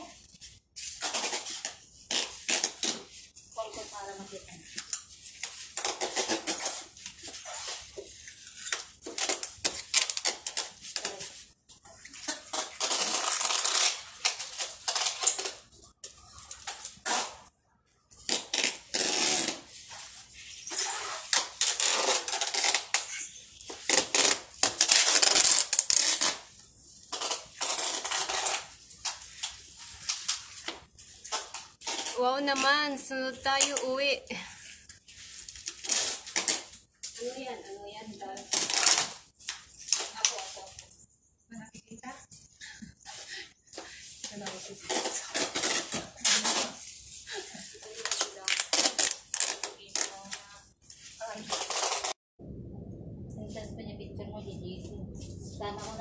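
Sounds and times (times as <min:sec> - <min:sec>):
packing tape pulled off roll: 0:00.0 - 0:03.3, 0:04.6 - 0:17.5, 0:18.1 - 0:32.7, 0:34.6 - 0:37.4, 0:38.2 - 0:40.6, 0:44.3 - 0:52.2.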